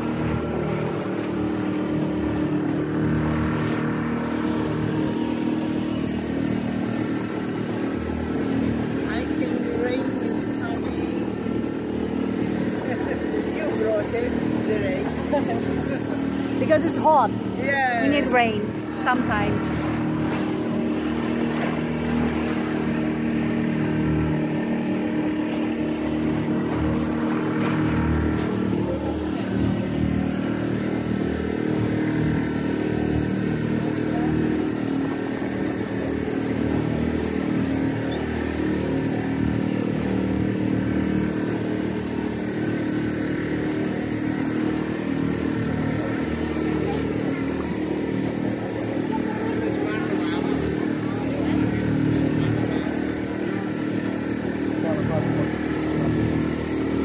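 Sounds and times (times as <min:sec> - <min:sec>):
boat engine running: 0:00.0 - 0:57.0
water rushing past hull: 0:00.0 - 0:57.0.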